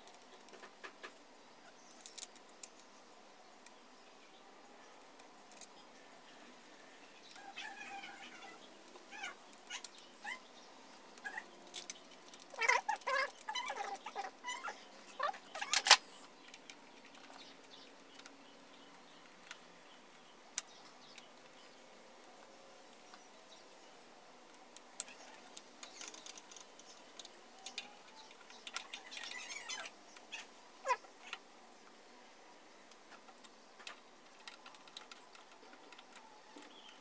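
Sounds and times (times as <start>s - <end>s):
faint animal calls: 7.4s - 10.4s, 11.2s - 11.5s, 12.5s - 16.3s, 28.8s - 31.4s.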